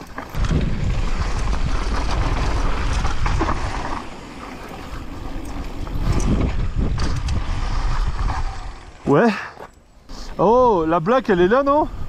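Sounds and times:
bike tyres rumbling over dirt: 0:00.0 - 0:09.5
wind buffeting microphone: 0:00.4 - 0:04.0, 0:05.0 - 0:09.0.

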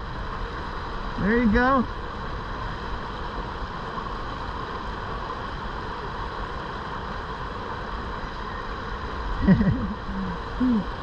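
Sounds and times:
river water rushing over shoal: 0:00.0 - 0:11.0.

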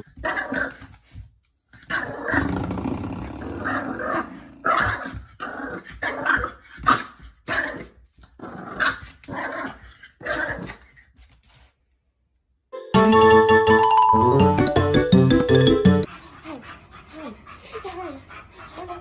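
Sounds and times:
small dog growling and barking: 0:01.8 - 0:10.9.

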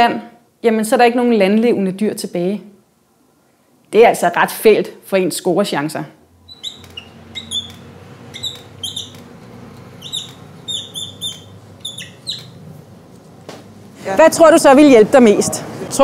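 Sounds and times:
marker squeaking on whiteboard: 0:06.5 - 0:12.9.

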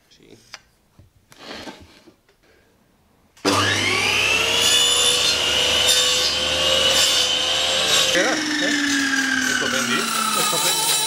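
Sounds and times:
power saw motor whining: 0:03.4 - 0:11.0.

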